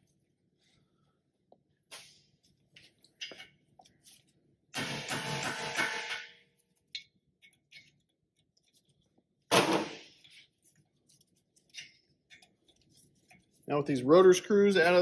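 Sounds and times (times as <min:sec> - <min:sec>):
hammer striking impact driver: 0:04.8 - 0:06.3.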